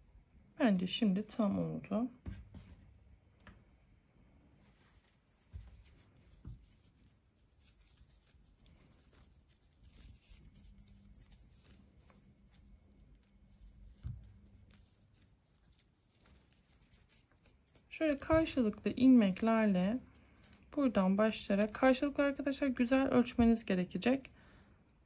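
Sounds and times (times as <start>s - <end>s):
yarn pieces rustling and clicking: 4.7s - 20.8s.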